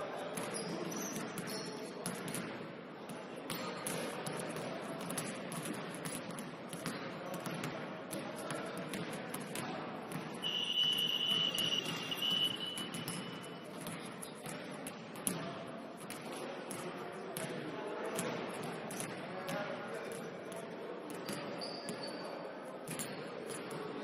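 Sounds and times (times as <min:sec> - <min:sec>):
gym hubbub: 0:00.0 - 0:24.0
basketball bouncing on court: 0:03.5 - 0:16.1
referee's whistle blast: 0:10.4 - 0:13.4.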